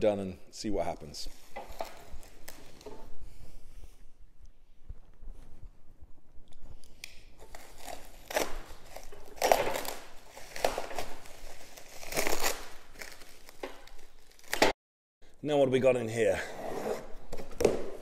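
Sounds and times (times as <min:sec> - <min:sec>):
plastic wrap crinkling: 0:01.3 - 0:02.9, 0:07.3 - 0:14.6
plastic tearing: 0:06.9 - 0:14.7.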